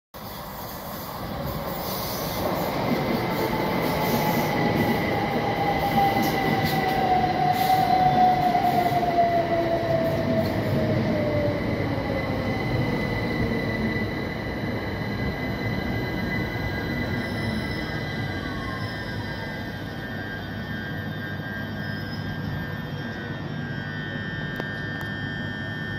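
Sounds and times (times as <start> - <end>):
train braking: 0.2 - 25.9
thin high squeal: 15.2 - 24.5.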